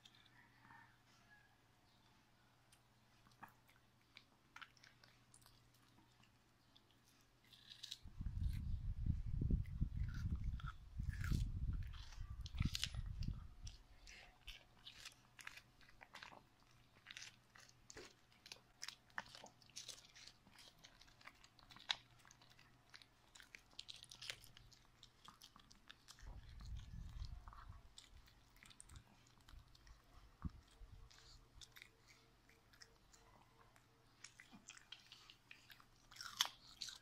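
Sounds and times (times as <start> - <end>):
dog chewing and licking: 9.4 - 37.0.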